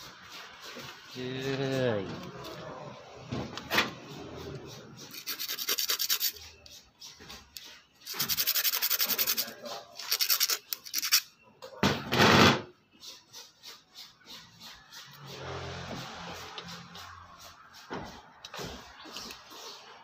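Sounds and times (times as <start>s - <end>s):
metal scratching on sanding disc: 4.1s - 11.3s, 12.8s - 17.9s.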